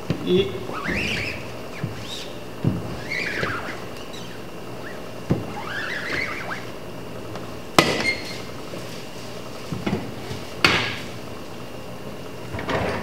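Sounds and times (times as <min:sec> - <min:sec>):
squeegee scraping screen mesh: 0:00.6 - 0:06.8.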